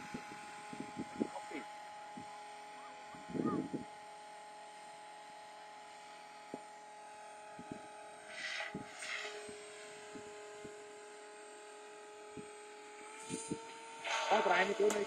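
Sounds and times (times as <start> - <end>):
distant rc helicopter whine: 0.0 - 15.0
brief hisses: 14.0 - 15.0.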